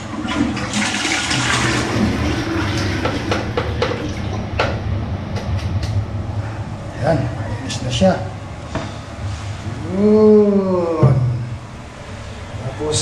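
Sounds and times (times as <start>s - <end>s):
toilet flushing: 0.0s - 4.8s.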